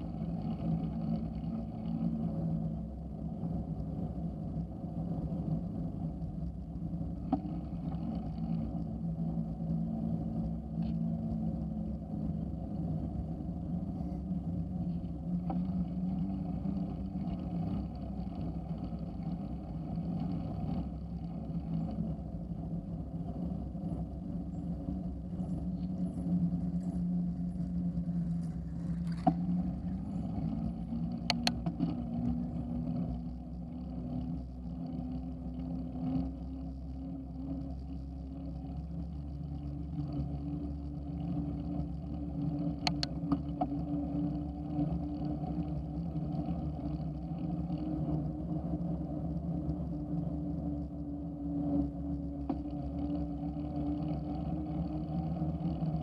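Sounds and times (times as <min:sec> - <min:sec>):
bicycle tyres rolling hum: 0:00.0 - 0:56.0
sharp clicks: 0:31.2 - 0:31.7, 0:42.8 - 0:43.2.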